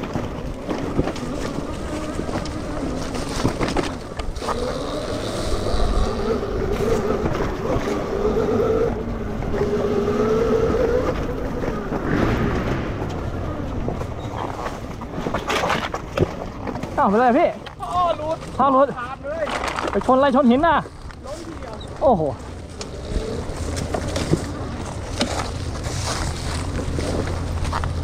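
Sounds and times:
electric motor whine: 1.0 - 12.1.

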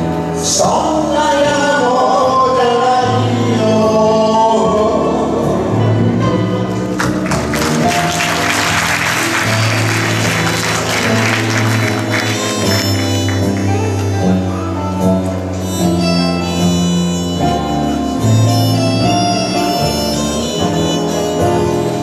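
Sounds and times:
karaoke backing track over speakers: 0.0 - 22.0
applause: 6.8 - 14.0.

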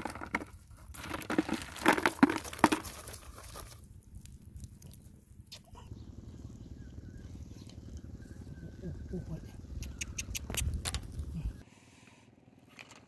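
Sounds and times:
dry stalks rustling and crackling: 0.0 - 5.6.

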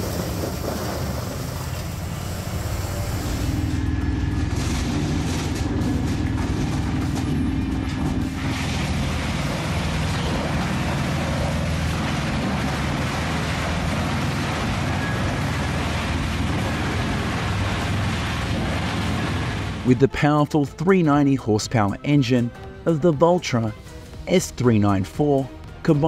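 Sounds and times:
wood chipper grinding: 0.0 - 19.9
steady hum: 0.0 - 20.1.

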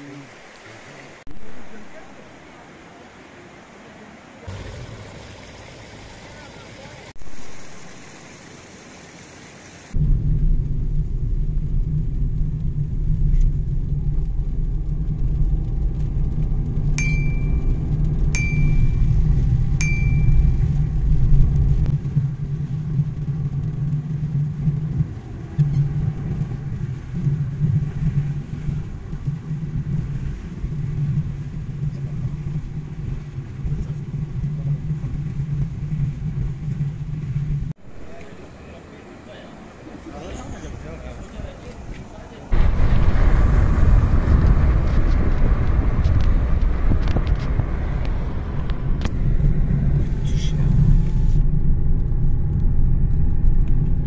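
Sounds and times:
rain on a car: 0.0 - 54.0
road and engine rumble: 0.0 - 54.0
short high beeps: 17.0 - 17.8, 18.4 - 19.2, 19.8 - 20.8.

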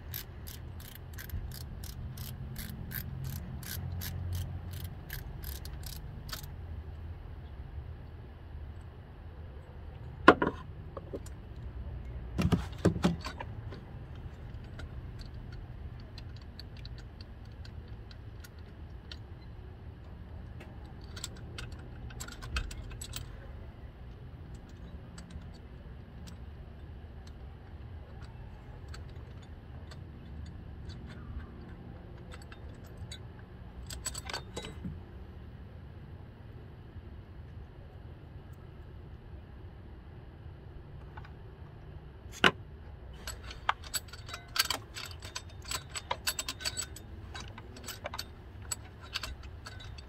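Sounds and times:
steady low hum: 0.0 - 50.0
metal tools clinking: 28.1 - 34.9, 43.1 - 50.0.

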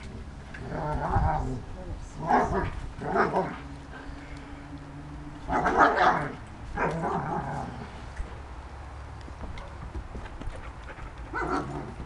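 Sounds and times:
dog barking: 5.5 - 7.0, 11.3 - 11.8.

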